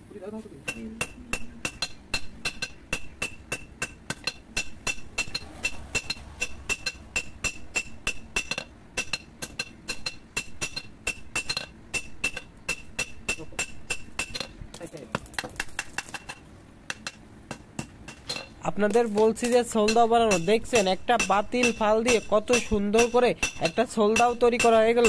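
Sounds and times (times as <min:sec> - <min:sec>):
hammer beating steel on anvil: 0:00.7 - 0:14.5, 0:16.9 - 0:25.0.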